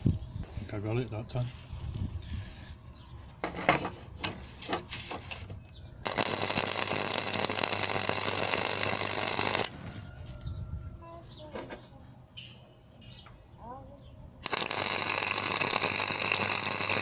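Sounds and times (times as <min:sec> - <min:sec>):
welding arc crackling and sizzling: 0:06.0 - 0:09.7, 0:14.4 - 0:17.0.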